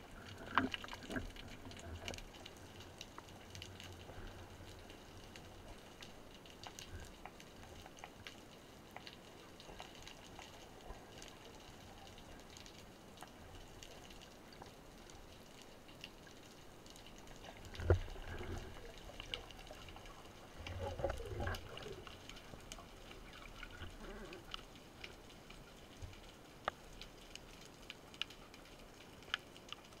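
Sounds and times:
faint underwater clicks and crackles: 0.0 - 30.0
muffled bubbling and rumble: 0.0 - 30.0.

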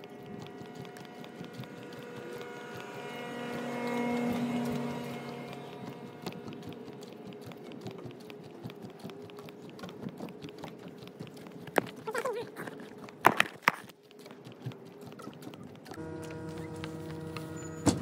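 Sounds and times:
faint steady hum: 0.0 - 13.2, 15.9 - 18.0
footsteps on wooden planks: 6.0 - 18.0.

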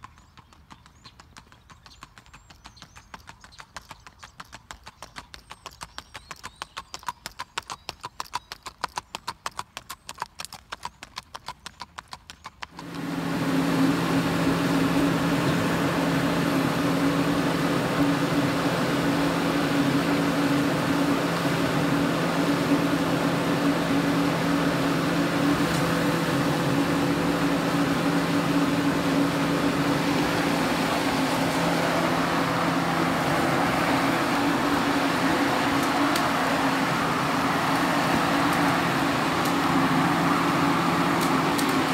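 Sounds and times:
horse hoofbeats: 0.0 - 13.1
engine humming: 12.7 - 41.9.

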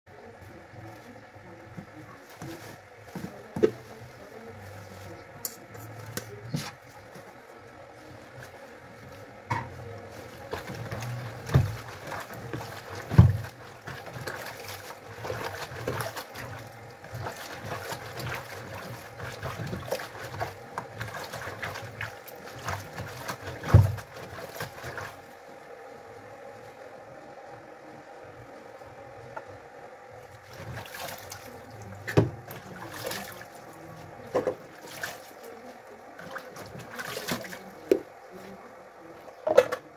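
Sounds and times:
hands swishing water: 10.0 - 25.3, 30.4 - 38.4.

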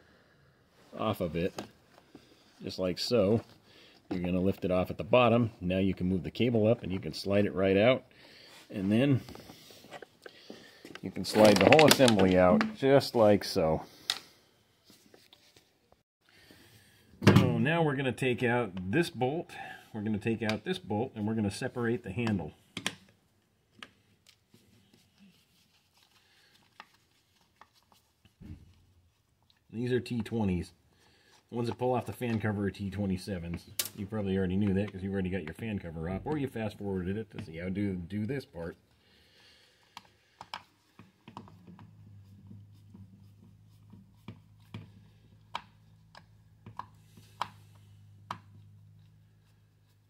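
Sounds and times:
low steady hum: 41.3 - 50.0.

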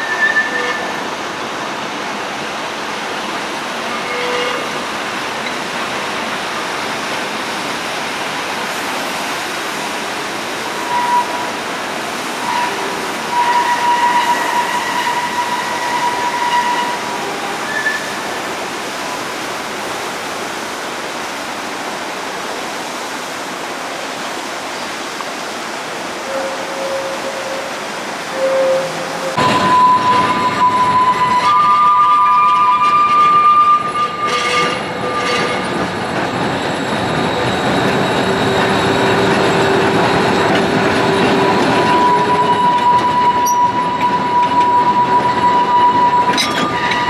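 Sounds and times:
tram wheels squealing: 0.0 - 1.1, 3.8 - 5.6, 10.7 - 11.6, 12.3 - 18.6, 26.2 - 47.0
street noise hiss: 0.8 - 31.0.

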